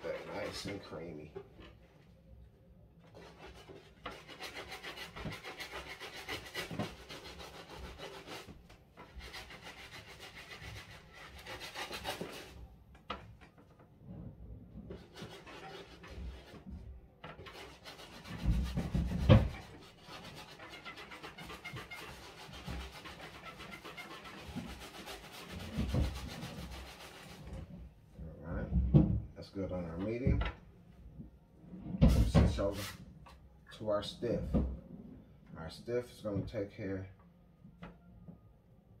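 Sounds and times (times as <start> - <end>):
brush scrubbing sneaker sole: 3.3 - 8.6, 9.2 - 12.6, 17.5 - 27.4.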